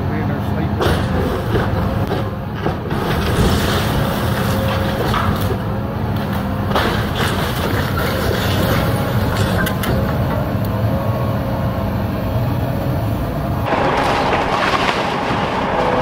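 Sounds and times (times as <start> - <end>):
excavator diesel engine running: 0.0 - 16.0
roof cracking and crunching: 13.6 - 16.0.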